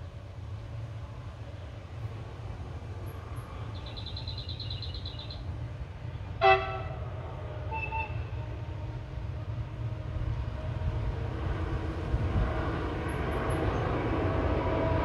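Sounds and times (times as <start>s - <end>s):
train rumbling: 0.0s - 15.0s
locomotive horn blast: 6.4s - 8.8s.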